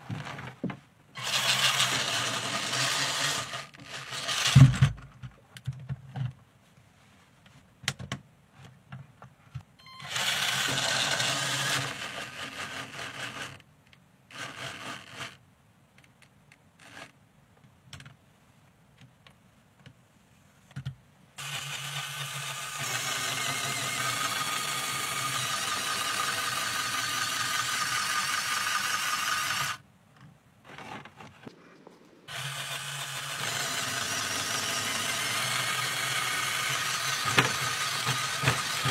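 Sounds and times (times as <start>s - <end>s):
small electric motors whirring: 1.2s - 4.8s, 10.0s - 13.6s, 14.3s - 15.4s, 21.4s - 29.8s, 31.9s - 38.9s
plastic parts clicking: 32.3s - 38.9s.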